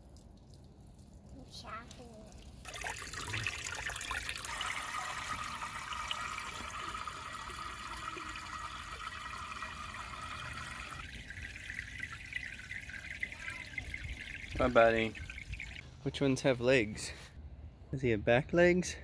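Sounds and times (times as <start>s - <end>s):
water pouring into a tank: 2.4s - 15.8s.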